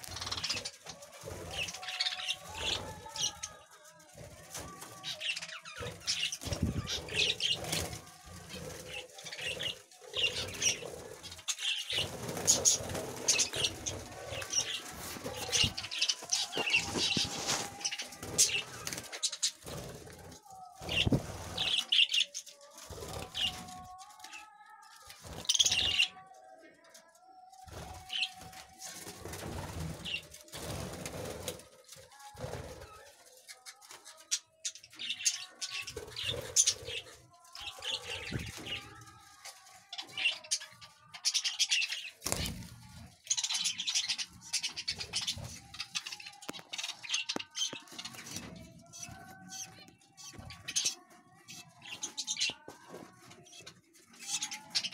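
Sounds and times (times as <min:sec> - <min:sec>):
budgerigars chirping and warbling: 0:00.0 - 0:03.5, 0:04.6 - 0:20.0, 0:20.8 - 0:23.8, 0:25.3 - 0:26.2, 0:33.5 - 0:39.0, 0:39.9 - 0:52.7, 0:53.4 - 0:54.9
wings flapping: 0:00.0 - 0:24.4, 0:27.6 - 0:33.1, 0:35.1 - 0:54.9.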